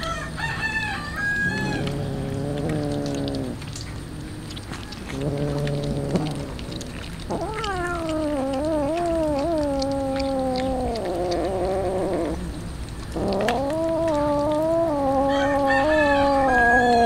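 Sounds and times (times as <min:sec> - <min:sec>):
cats eating off metal tray: 0:01.5 - 0:17.0
cat yowling: 0:04.8 - 0:12.5, 0:13.1 - 0:17.0.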